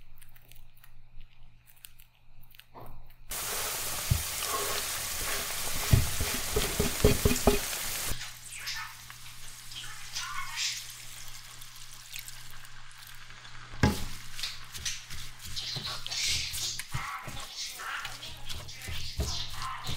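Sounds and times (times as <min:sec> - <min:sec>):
food sizzling in a pan: 0:03.3 - 0:19.9
kitchen clicks: 0:05.8 - 0:07.8
utensil knocking against pan: 0:05.8 - 0:08.0.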